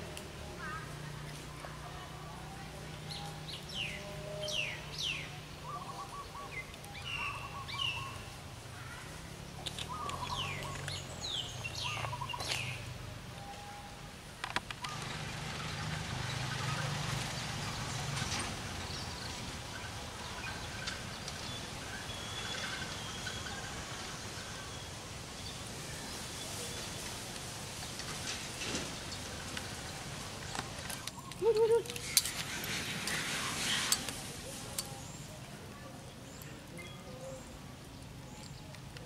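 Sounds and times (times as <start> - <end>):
steady outdoor hiss: 0.0 - 39.0
birds chirping: 2.7 - 14.0, 14.6 - 39.0.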